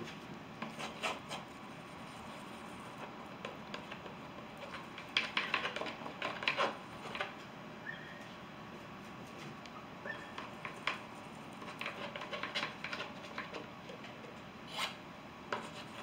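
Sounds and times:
palette knife scraping paint on canvas: 0.6s - 3.1s.

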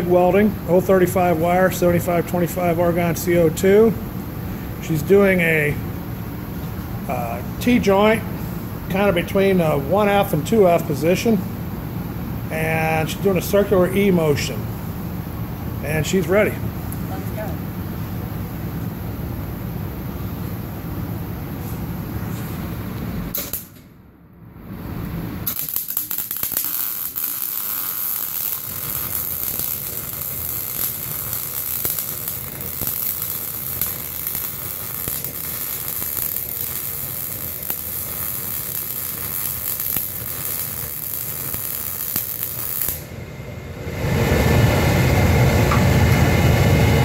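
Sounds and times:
welding arc crackling and hissing: 0.0s - 4.0s, 24.7s - 43.1s
low rumble: 43.0s - 47.0s.

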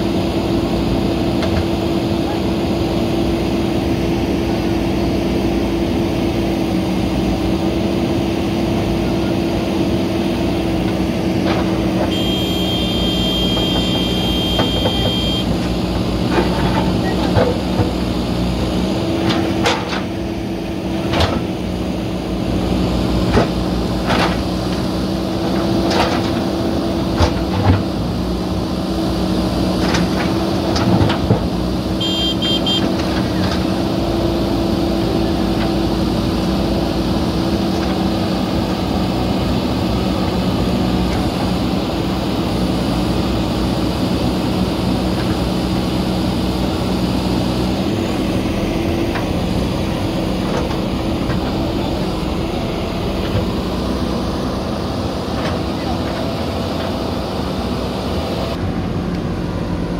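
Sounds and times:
diesel engines running: 0.0s - 59.9s
high whine: 12.0s - 15.7s, 32.0s - 32.9s.

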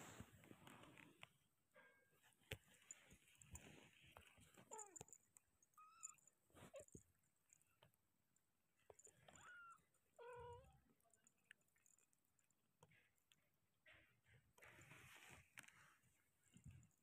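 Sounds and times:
soft rustles: 0.0s - 1.4s, 2.2s - 7.8s, 13.9s - 17.0s.

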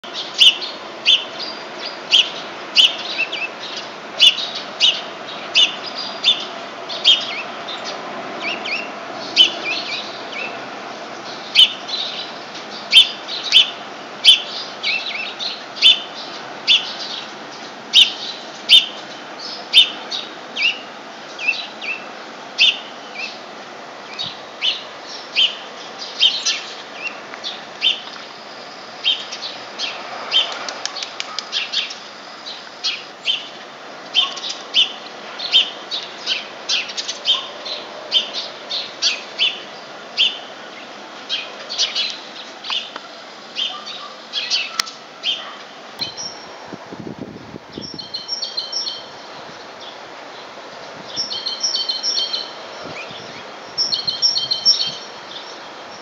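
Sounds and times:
low background noise: 0.0s - 56.0s
songbirds chirping: 0.0s - 56.0s.

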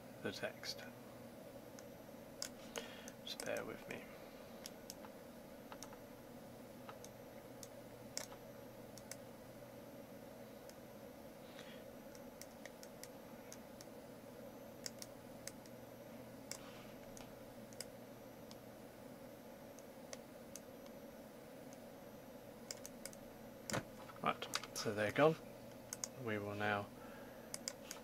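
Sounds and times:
steady low hum: 0.0s - 28.0s
faint mouse clicks: 1.8s - 3.7s, 14.8s - 15.8s, 27.5s - 28.0s.

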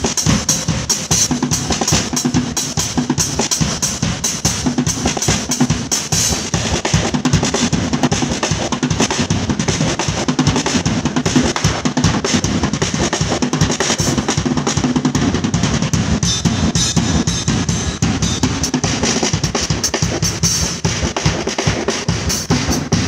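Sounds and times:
fast drum solo: 0.0s - 23.0s
cymbals ringing: 16.2s - 19.8s.

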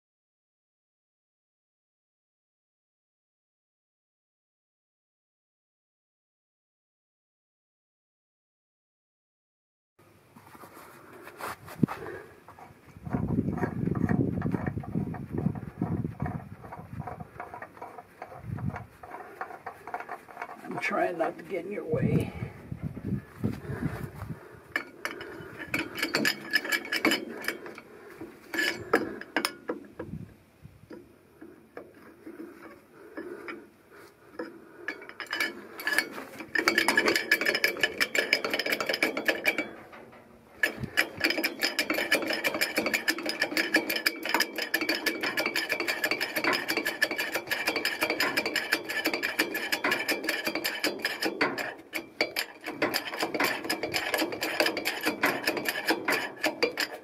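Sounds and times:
hydraulic jack pumping clanking: 13.0s - 21.5s, 23.5s - 30.2s, 34.3s - 57.0s.

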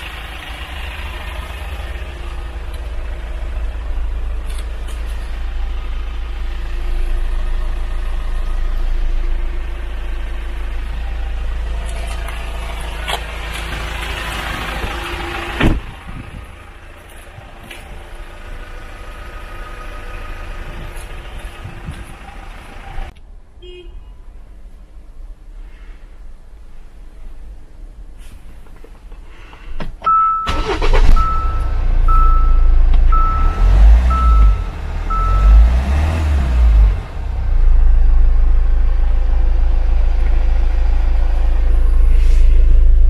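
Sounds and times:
vehicle idling hum: 0.0s - 23.2s, 30.4s - 43.0s
car door shutting: 14.9s - 15.9s.

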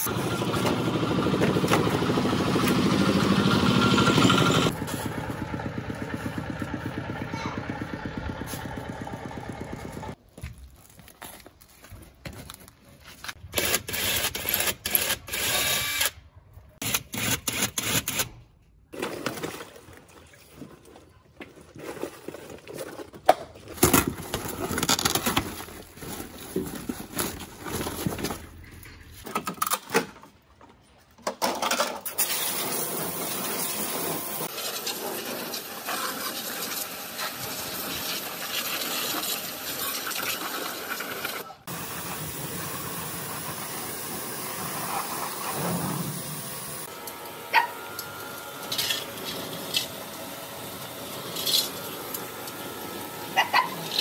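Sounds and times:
upholstery rustling and ripping: 23.8s - 28.6s
pressure washer spraying metal: 32.2s - 46.9s.

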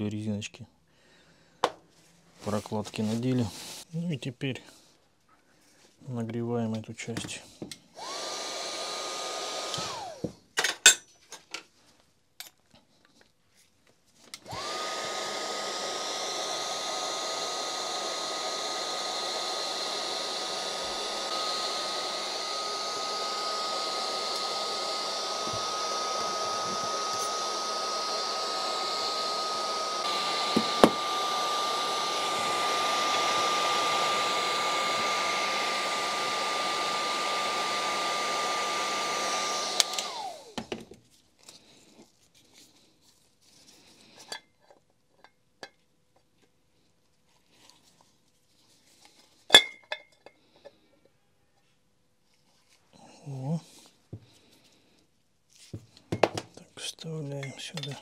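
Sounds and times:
heat gun blowing with fan whine: 7.6s - 10.4s, 14.3s - 40.9s.

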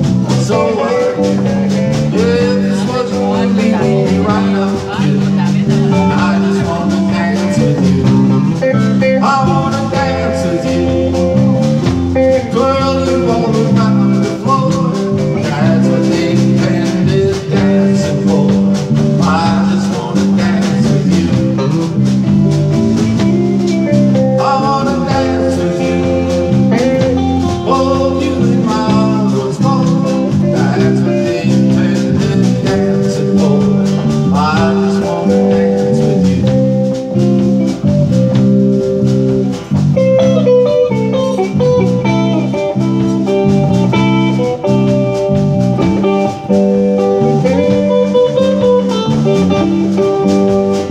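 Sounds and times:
man singing: 0.0s - 38.4s, 39.6s - 44.9s, 45.8s - 50.9s
country band playing: 0.0s - 50.9s.

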